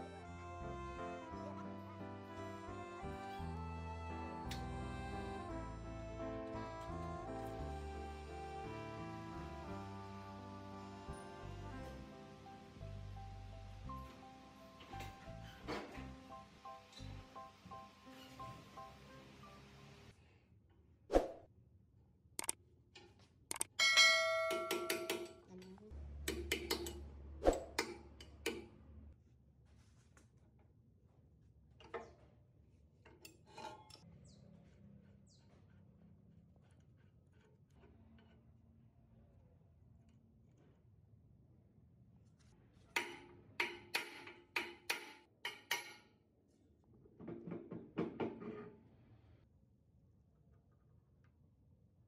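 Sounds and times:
struck metal ringing: 23.8 - 25.4.

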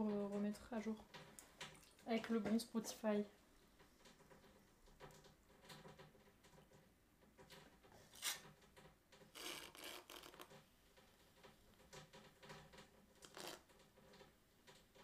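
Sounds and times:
metal rib scraping clay: 8.0 - 8.6.

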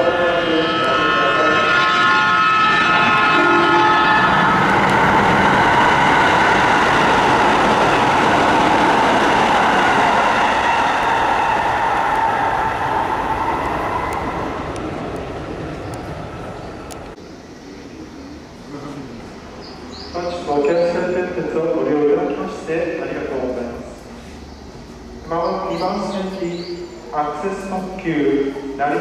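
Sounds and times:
train horn blasts: 0.0 - 6.8
train passing at speed: 0.0 - 29.0.

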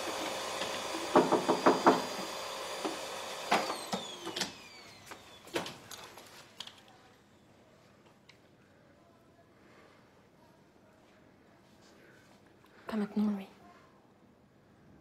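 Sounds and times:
sharp knocks: 1.1 - 2.1.

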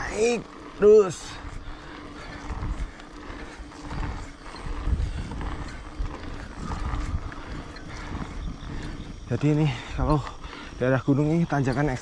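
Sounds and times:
wind buffeting microphone: 0.0 - 12.0
person breathing hard: 1.3 - 10.8.

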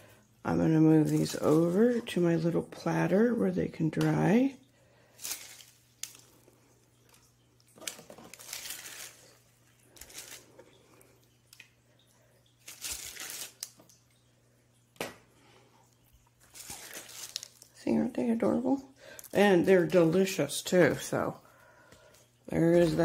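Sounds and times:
wax paper crinkling: 0.9 - 2.2, 5.0 - 11.7, 12.6 - 14.0, 16.2 - 18.3.

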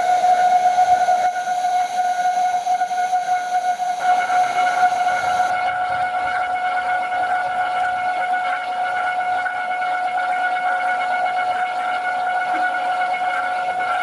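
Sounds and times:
high-pitched whistling whine: 0.0 - 5.7.

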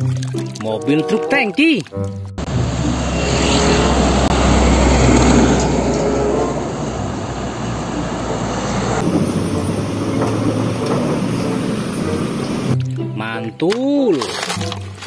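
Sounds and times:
road traffic noise: 2.0 - 15.0
diesel truck engine rumble: 2.3 - 13.2.

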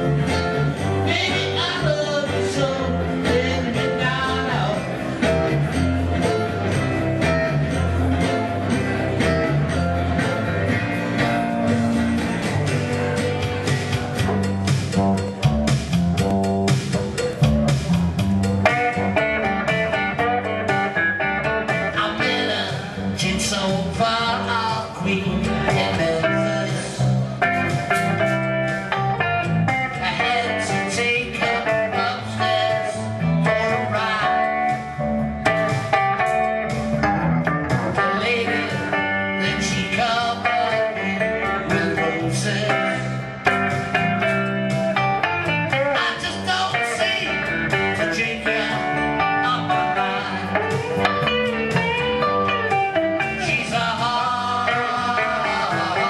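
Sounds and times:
electric guitars: 0.0 - 56.0
man singing into microphone: 1.0 - 5.0, 21.8 - 27.2, 29.9 - 35.0, 38.0 - 43.4, 45.9 - 51.1, 53.2 - 56.0.

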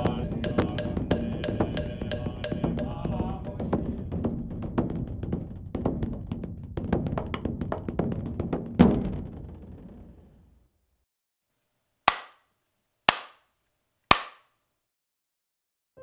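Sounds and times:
wooden fish knocks: 0.3 - 9.5.

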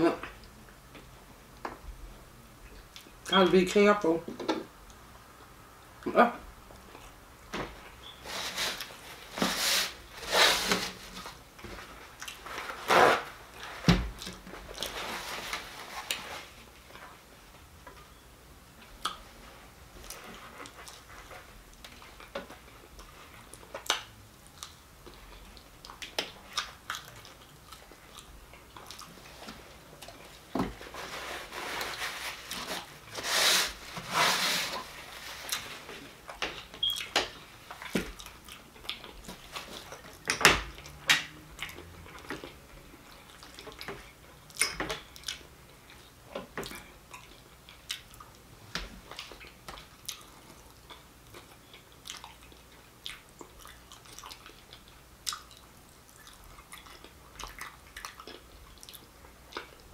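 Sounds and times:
chewing and biting food: 21.7 - 30.5, 37.7 - 48.4, 49.0 - 59.9.

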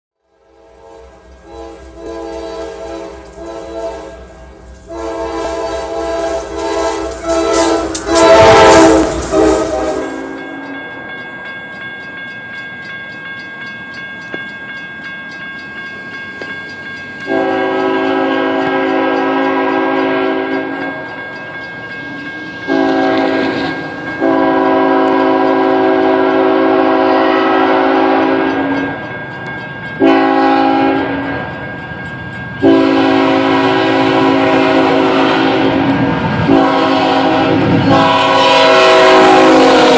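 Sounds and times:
locomotive air horn: 0.3 - 10.5, 17.3 - 20.8, 22.7 - 28.8, 30.0 - 31.3, 32.6 - 39.9.

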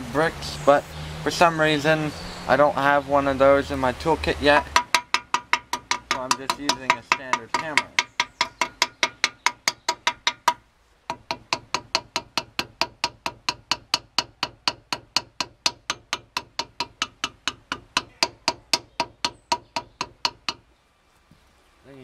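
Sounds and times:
hammer tapping brick: 4.6 - 20.7.

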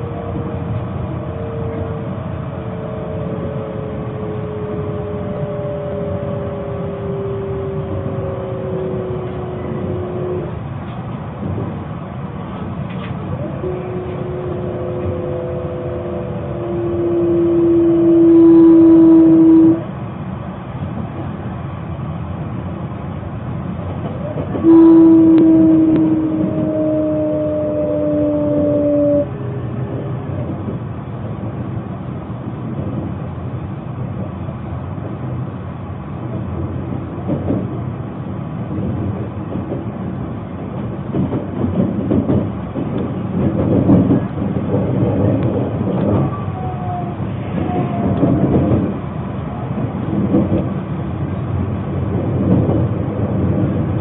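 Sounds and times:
loud steady tone: 0.0 - 10.9, 13.3 - 20.1, 24.2 - 32.0
train rumble with whine: 0.0 - 54.0.

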